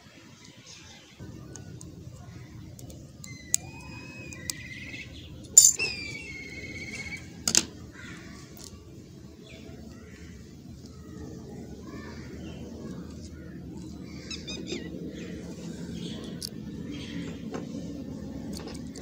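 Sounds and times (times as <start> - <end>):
bird whistled calls: 3.2 - 7.4.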